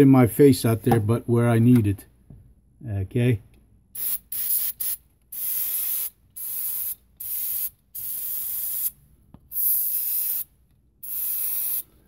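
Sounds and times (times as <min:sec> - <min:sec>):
aerosol spray can hissing: 0:04.0 - 0:11.9.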